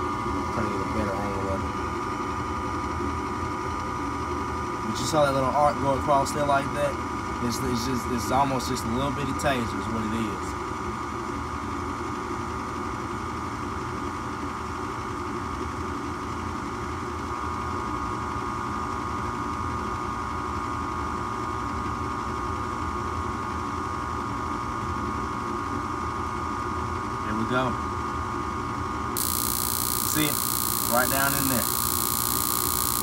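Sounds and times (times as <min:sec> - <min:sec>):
furnace inducer motor humming: 0:29.2 - 0:33.0.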